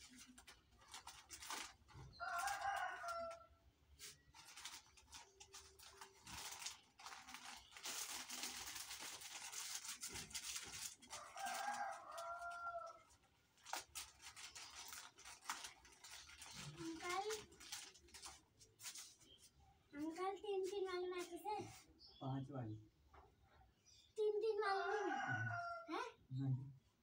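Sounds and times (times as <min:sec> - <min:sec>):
plastic crinkling and rustling: 0:00.0 - 0:21.5
rooster crowing: 0:02.2 - 0:03.4, 0:11.2 - 0:13.0, 0:24.7 - 0:25.9.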